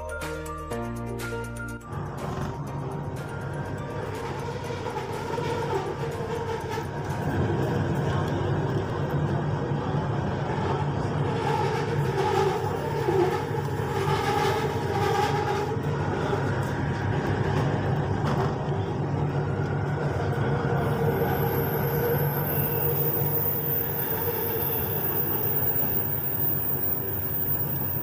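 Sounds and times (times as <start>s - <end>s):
train running on track: 0.0s - 28.0s
low motor hum: 1.8s - 23.6s.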